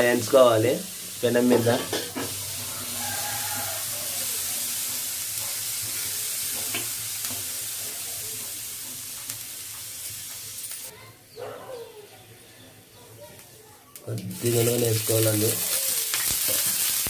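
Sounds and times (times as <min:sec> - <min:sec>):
chillies sizzling on iron pan: 0:00.0 - 0:11.4, 0:12.2 - 0:17.0
metal spoon on pan: 0:01.3 - 0:10.9, 0:14.5 - 0:17.0.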